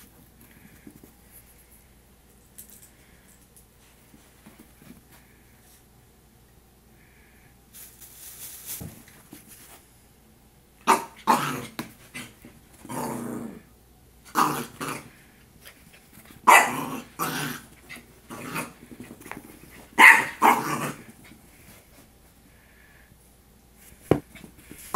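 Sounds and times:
faint rustle: 0:07.1 - 0:10.0
puppy barking: 0:10.8 - 0:11.4, 0:16.4 - 0:17.0, 0:20.0 - 0:21.0.

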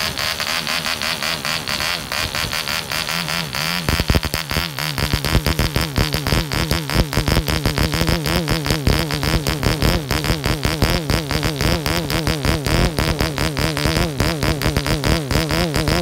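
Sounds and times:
model engine running with propeller: 0:00.0 - 0:16.0.

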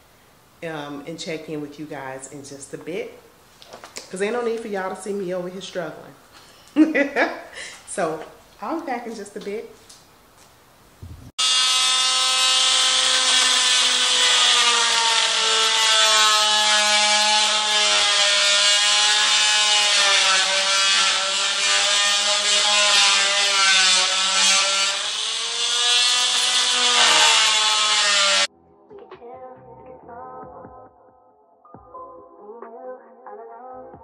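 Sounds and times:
rotary tool cutting plywood: 0:11.4 - 0:28.5.

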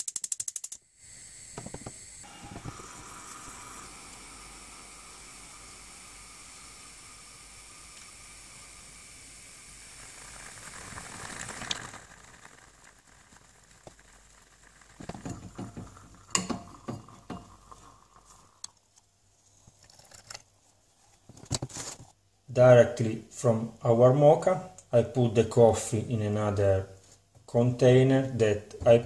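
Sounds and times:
moka pot hissing and gurgling: 0:00.8 - 0:18.9
metal pot knocks and clinks: 0:15.0 - 0:17.6.

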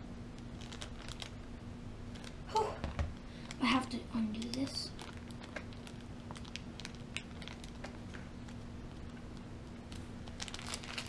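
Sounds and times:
steady low hum: 0:00.0 - 0:11.0
fingers clicking plastic packaging: 0:00.4 - 0:01.4, 0:04.3 - 0:09.5, 0:10.3 - 0:11.0.

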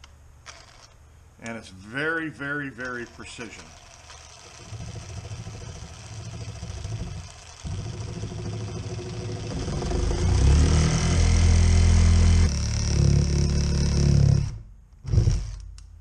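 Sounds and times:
reciprocating saw cutting metal: 0:02.9 - 0:14.5.

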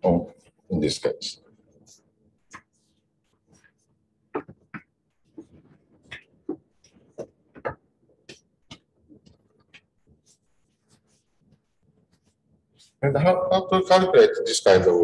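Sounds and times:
writing on a board: 0:01.8 - 0:13.0.

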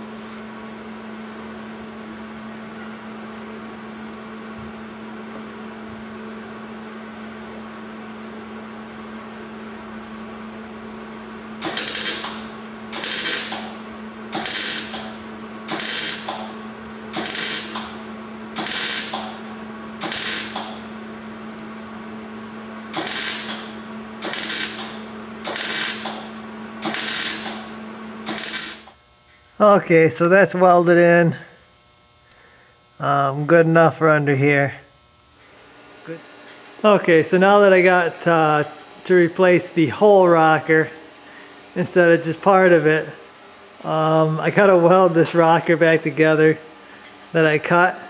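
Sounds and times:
welding arc crackling spurts: 0:11.5 - 0:21.0, 0:22.9 - 0:30.2.

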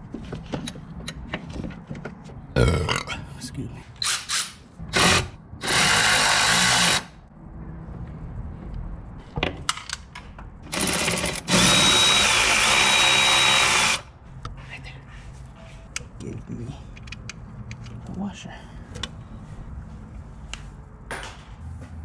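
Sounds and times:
cordless power tool spinning: 0:10.8 - 0:14.0.

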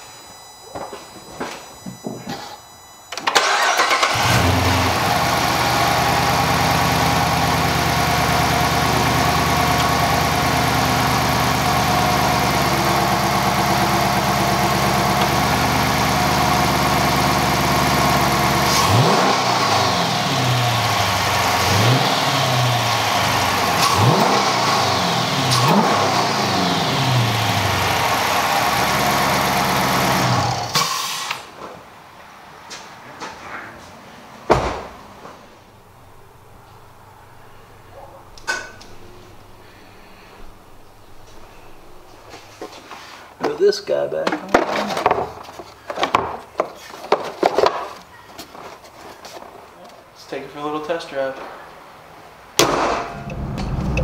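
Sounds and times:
car engine starting and idling: 0:03.1 - 0:31.4, 0:35.7 - 0:42.8, 0:52.6 - 0:54.0
car engine revving: 0:03.4 - 0:30.8, 0:36.0 - 0:42.4, 0:52.6 - 0:54.0.

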